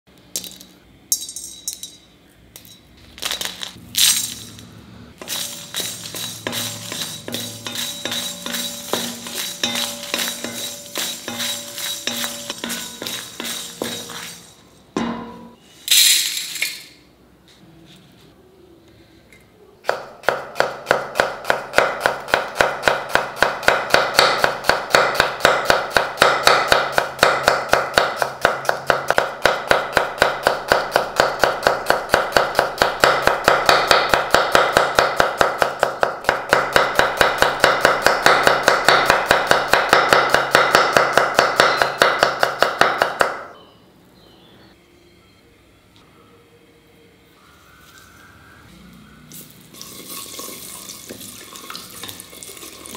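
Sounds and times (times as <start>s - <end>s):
knife slicing onion on wooden board: 5.2s - 14.5s, 19.9s - 43.4s.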